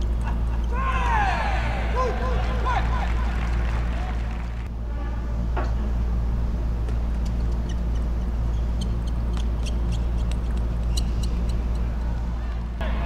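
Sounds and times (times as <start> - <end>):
low hum: 0.0 - 13.0
shoe squeak: 7.2 - 12.3.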